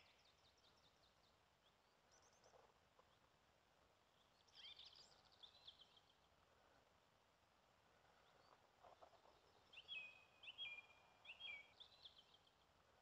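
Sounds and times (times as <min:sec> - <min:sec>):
songbird chirping: 0:08.1 - 0:12.7.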